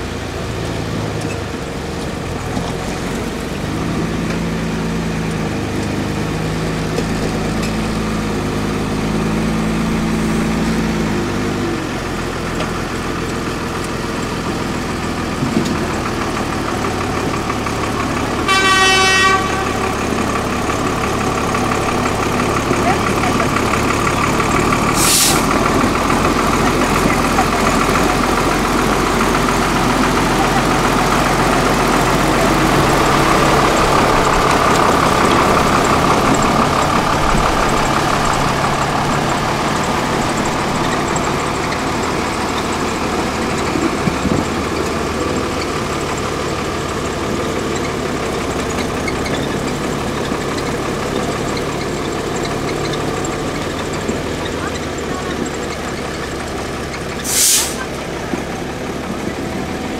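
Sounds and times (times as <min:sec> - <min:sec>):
truck engine running under load: 0:00.0 - 0:59.9
short hiss: 0:25.0 - 0:25.5, 0:57.2 - 0:57.9.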